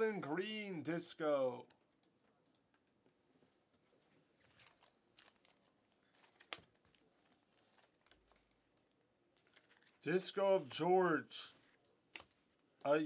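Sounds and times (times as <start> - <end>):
trading cards rustling: 4.3 - 13.0.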